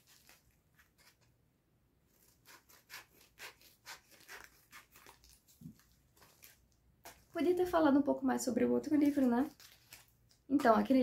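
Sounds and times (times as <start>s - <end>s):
packaging rustling: 0.0s - 1.3s, 3.2s - 7.6s, 8.9s - 10.9s.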